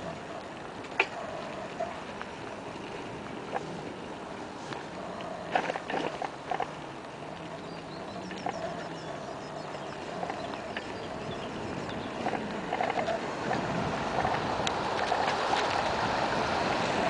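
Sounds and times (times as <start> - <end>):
faint high bird chirps: 7.6 - 13.0.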